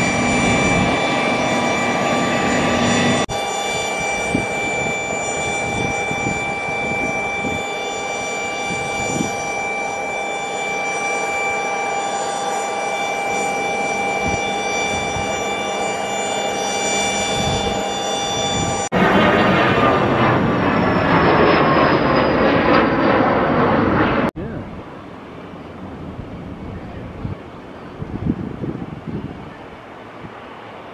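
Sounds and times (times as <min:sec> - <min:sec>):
jet engine rushing hiss: 0:00.0 - 0:09.8
jet engines high whine: 0:00.0 - 0:30.9.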